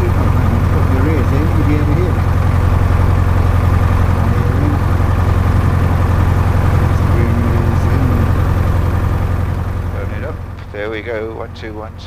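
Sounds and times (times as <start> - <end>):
aircraft engine and propeller drone: 0.0 - 12.0.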